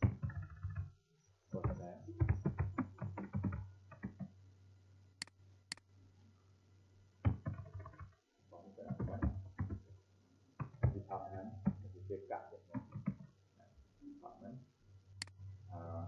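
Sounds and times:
keyboard keystrokes: 0.0s - 0.9s, 1.6s - 4.3s, 7.2s - 8.2s
steady low hum: 0.0s - 16.0s
mouse clicks: 5.2s - 5.9s, 15.2s - 15.4s.

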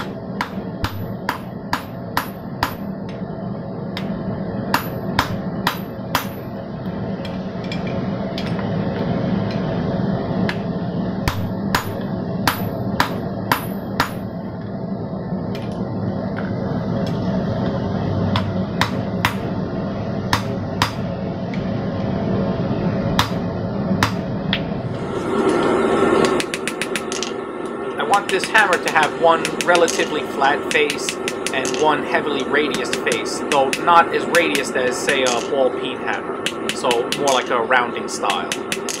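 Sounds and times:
hammer striking hot metal on anvil: 0.0s - 2.9s, 4.7s - 6.4s, 11.2s - 14.2s, 18.3s - 19.5s, 20.3s - 21.1s, 23.2s - 23.4s, 24.0s - 24.6s, 26.2s - 27.3s, 28.1s - 35.6s, 36.4s - 37.6s, 38.2s - 39.0s
steady low hum: 0.0s - 39.0s.

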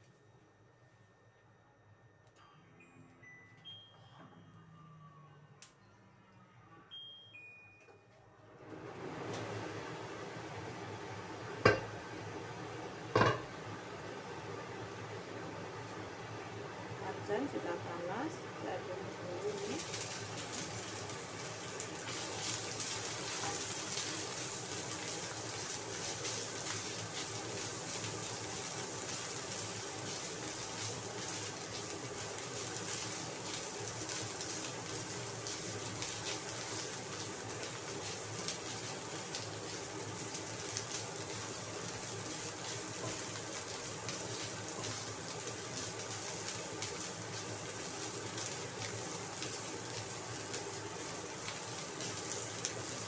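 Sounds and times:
food sizzling in hot oil: 11.4s - 12.1s, 13.1s - 13.6s, 19.2s - 53.0s.

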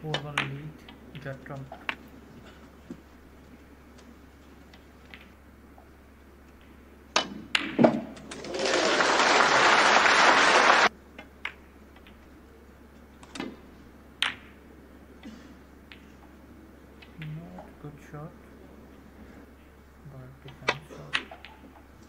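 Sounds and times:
snooker balls clicking: 0.0s - 8.9s, 14.2s - 14.6s, 15.8s - 17.8s, 20.5s - 22.0s
audience applause: 8.3s - 10.9s.

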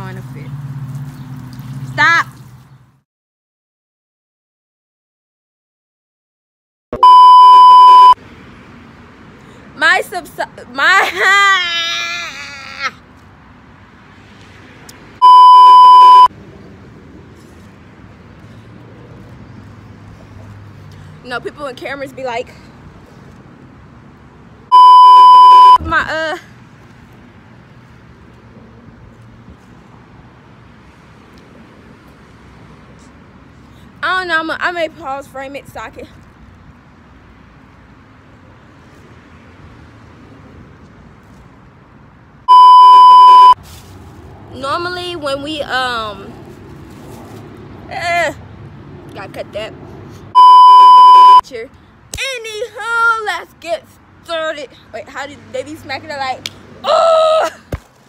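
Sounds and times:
electronic censor bleep: 7.0s - 8.2s, 15.2s - 16.3s, 24.7s - 25.8s, 42.5s - 43.6s, 50.4s - 51.4s
loud steady test tone beep: 7.0s - 8.2s, 15.2s - 16.3s, 24.7s - 25.8s, 42.5s - 43.6s, 50.4s - 51.4s.

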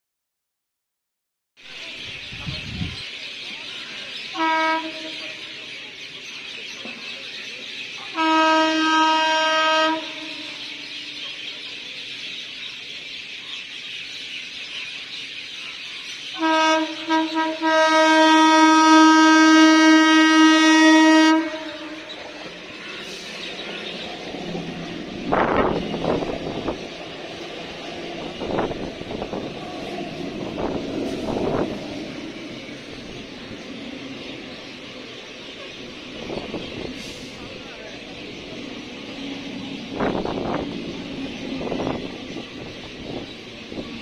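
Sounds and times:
train carriages rumbling past: 1.7s - 44.0s
train horn: 4.3s - 5.5s, 8.1s - 10.9s, 16.4s - 23.2s.

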